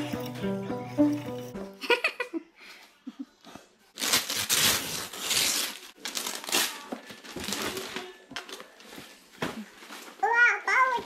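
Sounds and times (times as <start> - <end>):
wrapping paper crinkling and tearing: 3.9 - 11.0.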